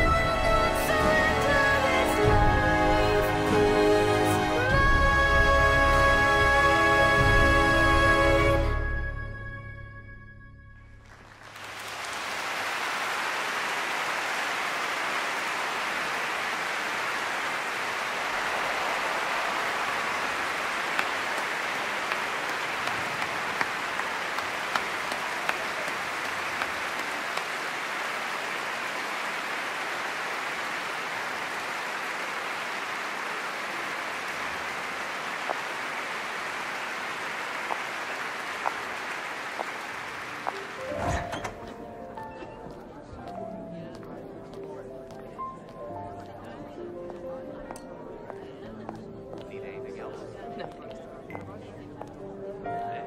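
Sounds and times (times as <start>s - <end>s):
large audience applauding: 11.0s - 41.5s.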